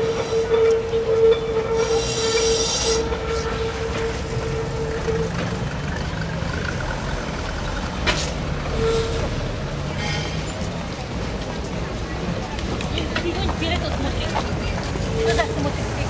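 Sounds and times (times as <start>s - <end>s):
tram running on rails: 0.0s - 16.0s
shrill squeal: 1.4s - 4.6s.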